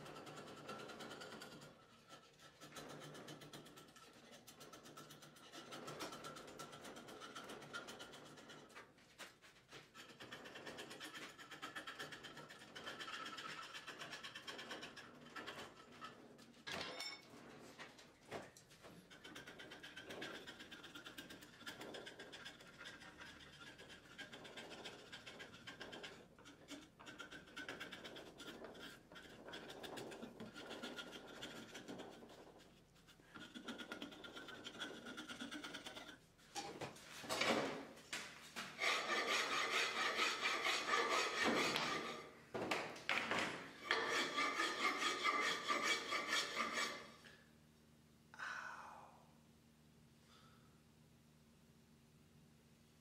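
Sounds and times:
hand rasp scraping wood: 0.0 - 16.6, 18.9 - 36.2, 38.6 - 42.4, 43.8 - 47.4.

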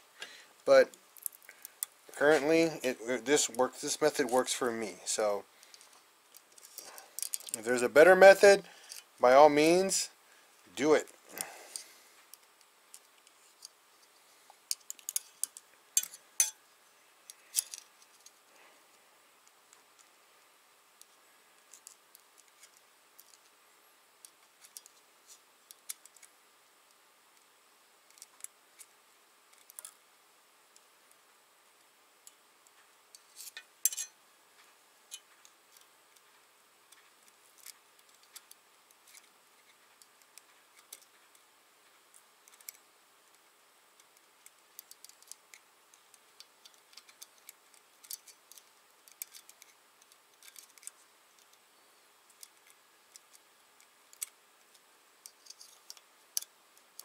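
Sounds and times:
small metallic clicks: 14.7 - 16.6, 29.5 - 30.0, 44.0 - 51.6, 52.3 - 57.0.

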